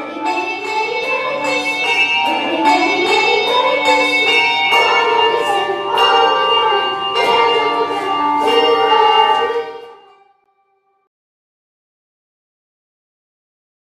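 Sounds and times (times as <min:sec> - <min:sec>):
handbell choir ringing chords: 0:00.0 - 0:10.3
children's chorus singing: 0:00.0 - 0:10.9.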